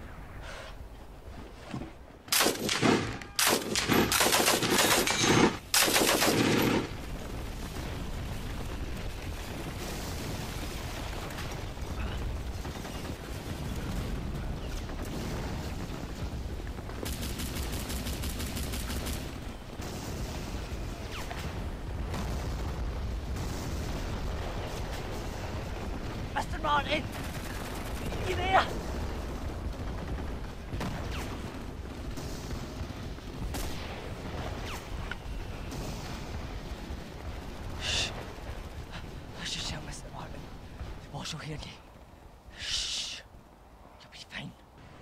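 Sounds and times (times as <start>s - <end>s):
machine-gun fire bursts: 2.3s - 7.0s, 17.0s - 21.2s.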